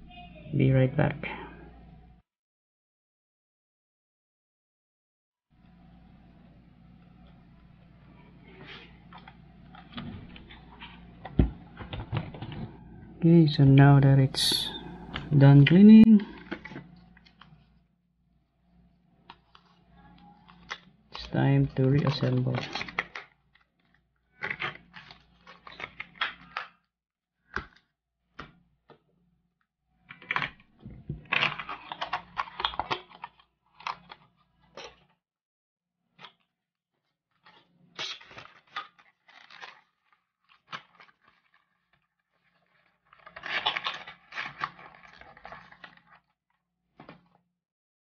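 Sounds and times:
handling noise scraping and crinkling: 0:08.4 - 0:17.8, 0:19.2 - 0:26.8, 0:30.1 - 0:35.2, 0:36.2 - 0:47.4.

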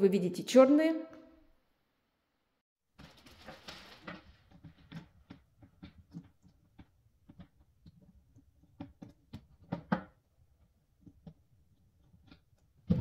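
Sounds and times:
small clicks and knocks: 0:03.0 - 0:12.8.

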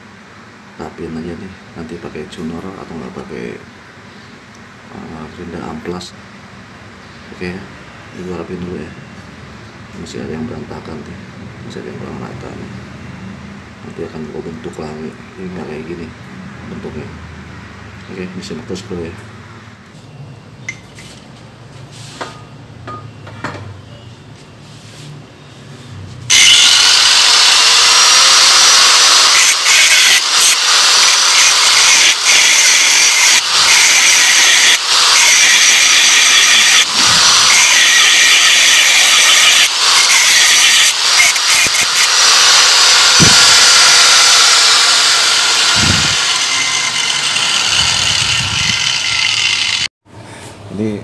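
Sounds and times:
angle grinder grinding metal: 0:26.3 - 0:49.9.

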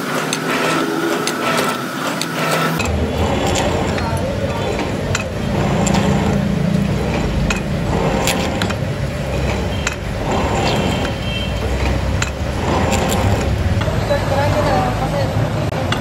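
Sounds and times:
low machinery rumble: 0:02.8 - 0:15.3.

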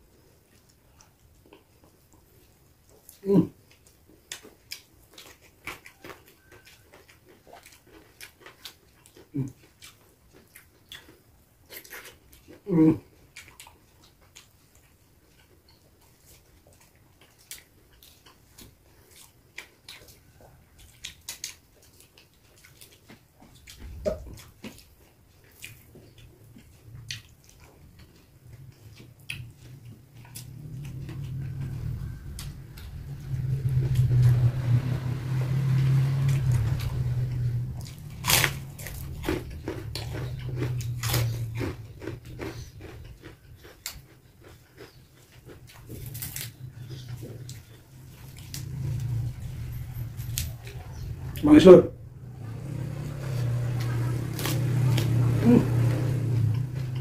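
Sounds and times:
person chewing and crunching: 0:00.0 - 0:51.5, 0:52.4 - 0:57.0
low drone: 0:30.2 - 0:41.8.

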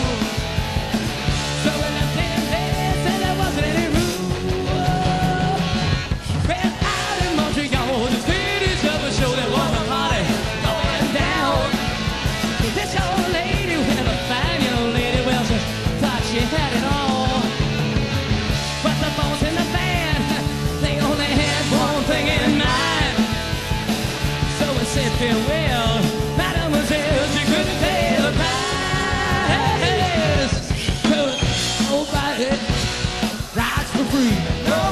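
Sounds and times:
bass guitar: 0:00.0 - 0:34.9
distorted electric guitar: 0:00.0 - 0:34.9
driving drum kit: 0:00.0 - 0:34.9
person singing: 0:01.5 - 0:05.8, 0:06.4 - 0:11.8, 0:18.8 - 0:23.3, 0:24.5 - 0:32.8, 0:33.6 - 0:34.9.

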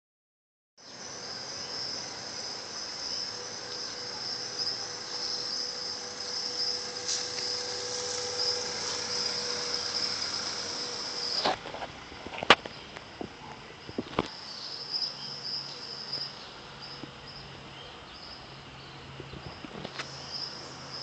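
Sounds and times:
insect chirring: 0:00.8 - 0:11.6, 0:19.6 - 0:21.0.

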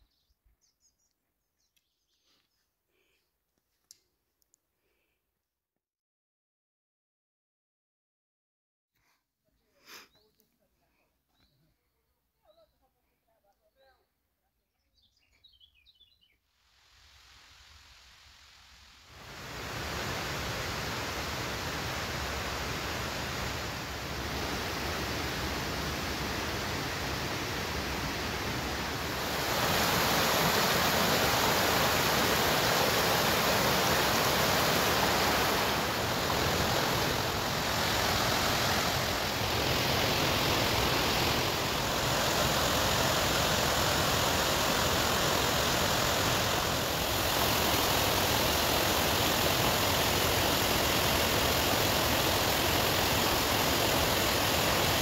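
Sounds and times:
stream rushing over rocks: 0:19.2 - 0:55.0.

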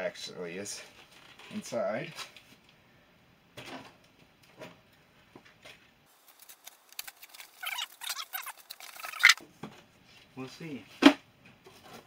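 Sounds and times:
cardboard and paper rustling: 0:06.1 - 0:09.4
squeaky rubbing: 0:06.4 - 0:09.4.

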